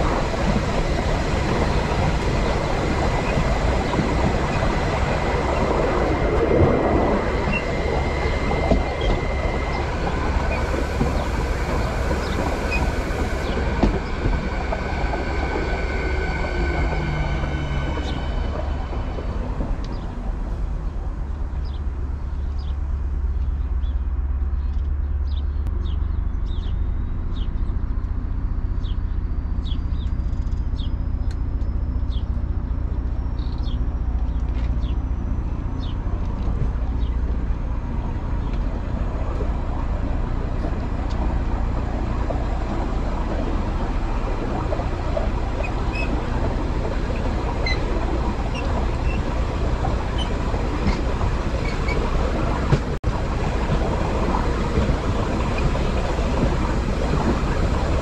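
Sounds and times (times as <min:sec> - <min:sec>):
faint rising whine: 0:00.0 - 0:22.7
passenger train running: 0:00.0 - 0:23.6, 0:30.7 - 0:58.0.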